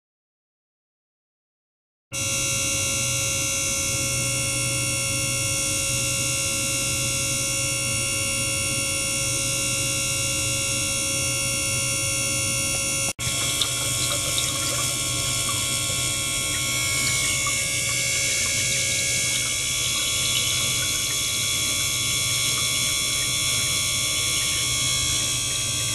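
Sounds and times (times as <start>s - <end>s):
water pump humming and whining: 2.2s - 25.9s
water washing and trickling: 13.2s - 24.9s.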